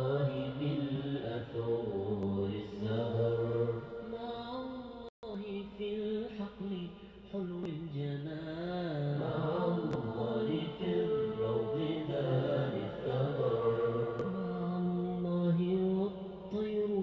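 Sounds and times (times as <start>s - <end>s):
voices chanting slow melody: 0.0s - 5.1s, 8.9s - 17.0s.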